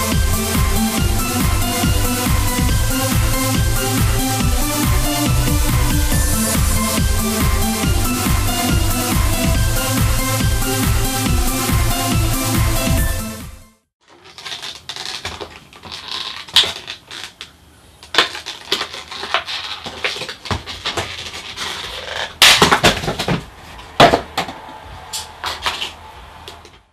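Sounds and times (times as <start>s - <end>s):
packaging crackling and rustling: 14.0s - 24.0s.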